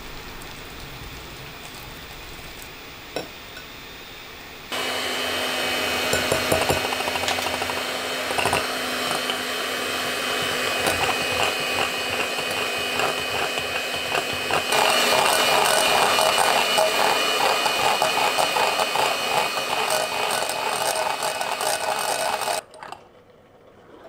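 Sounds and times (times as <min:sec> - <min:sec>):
electric hand mixer whining: 0:04.6 - 0:22.6
beaters clicking in glass bowl: 0:10.4 - 0:22.9.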